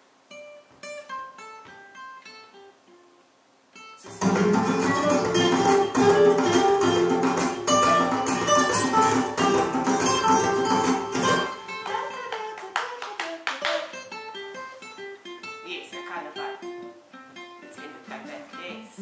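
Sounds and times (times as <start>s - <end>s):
fingerpicked acoustic guitar: 0.3s - 19.0s.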